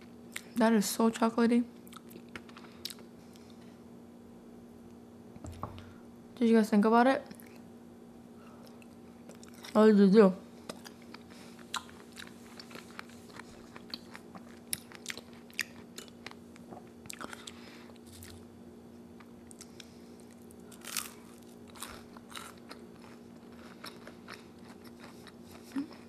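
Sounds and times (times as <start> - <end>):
crunchy chewing: 8.4 - 9.8, 10.6 - 18.5, 19.2 - 26.0.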